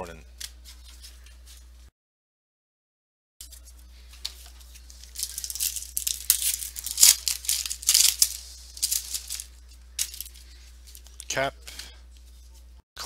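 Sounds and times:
wrapper tearing and crinkling: 4.8s - 10.3s.

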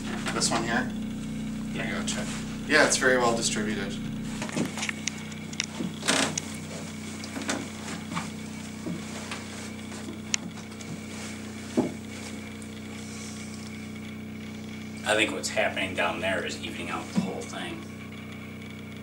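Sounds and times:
wooden boards humming: 0.0s - 19.0s
wooden seat creaks and knocks: 4.4s - 12.3s.

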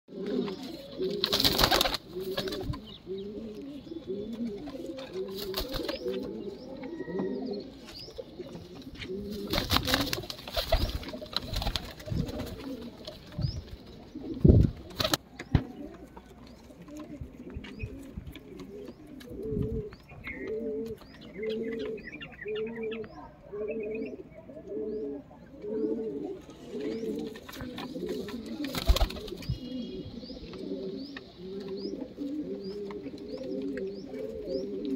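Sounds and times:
pigeons cooing: 0.1s - 34.9s
wing flapping: 1.2s - 2.8s, 5.3s - 6.0s, 9.3s - 12.9s, 27.6s - 29.5s.

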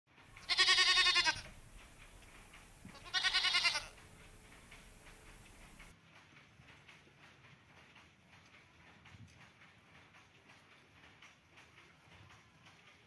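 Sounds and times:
goat bleating: 0.4s - 5.8s.

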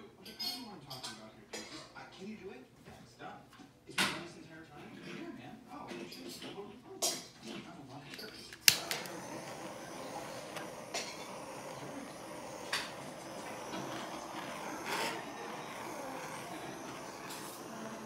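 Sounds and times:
torch flame hissing: 8.6s - 18.0s
burst of noise: 8.7s - 18.0s.

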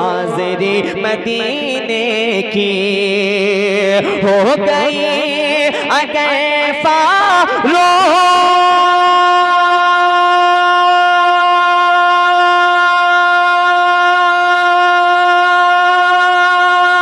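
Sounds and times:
man singing long note: 0.0s - 17.0s.

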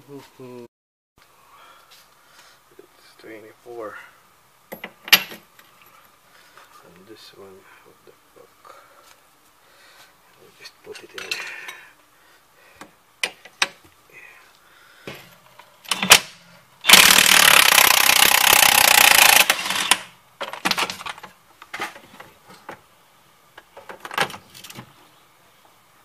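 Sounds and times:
impact wrench hammering: 16.9s - 20.1s.

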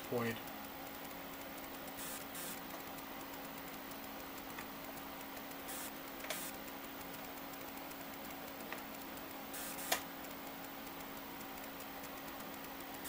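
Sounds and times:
equipment humming and hissing: 0.0s - 13.0s
faint ticks: 0.0s - 13.0s.

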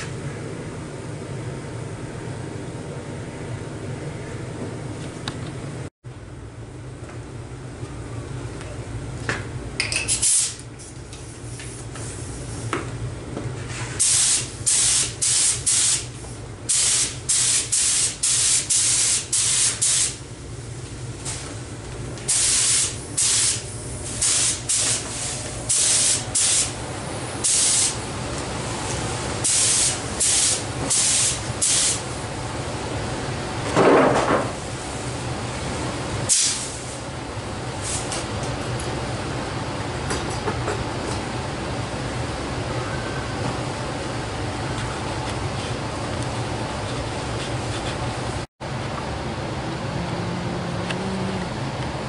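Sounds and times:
spray gun hissing in bursts: 14.0s - 20.2s, 22.3s - 26.8s, 27.4s - 28.0s, 29.4s - 32.2s.

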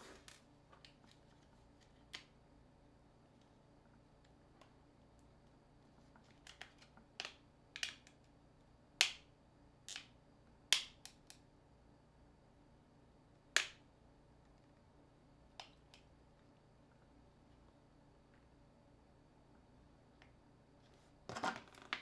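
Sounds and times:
plastic clicks and snaps: 6.2s - 8.3s, 15.6s - 16.1s.

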